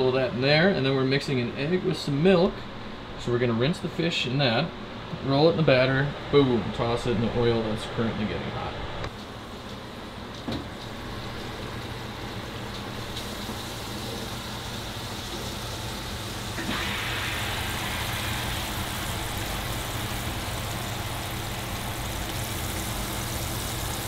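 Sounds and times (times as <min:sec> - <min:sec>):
fish sizzling in hot oil: 0:10.9 - 0:24.0.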